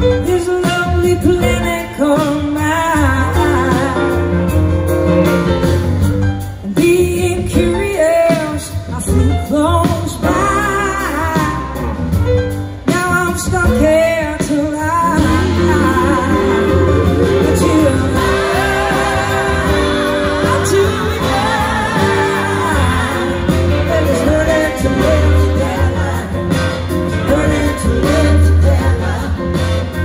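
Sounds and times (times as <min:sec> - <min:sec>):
woman singing: 0:00.0 - 0:04.6, 0:06.6 - 0:12.0, 0:12.8 - 0:26.4
live band playing soul-rock: 0:00.0 - 0:30.0.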